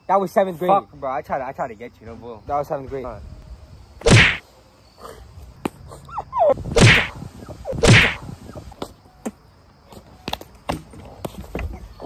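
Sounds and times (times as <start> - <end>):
hard slaps: 4.0 - 4.4, 6.8 - 7.2, 7.8 - 8.2.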